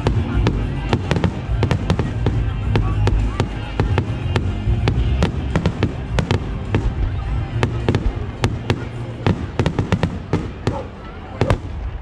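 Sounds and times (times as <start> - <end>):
fireworks bangs: 0.0 - 12.0.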